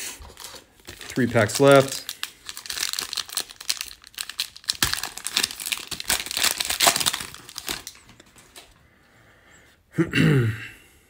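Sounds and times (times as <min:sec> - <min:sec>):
foil wrapper tearing and crinkling: 0:00.2 - 0:08.2.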